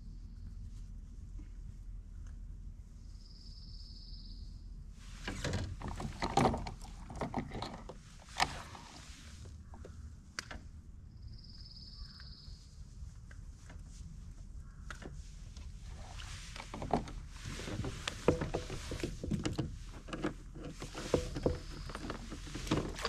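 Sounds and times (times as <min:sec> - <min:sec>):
knocking and rustling: 0:05.2 - 0:10.0, 0:15.9 - 0:23.0.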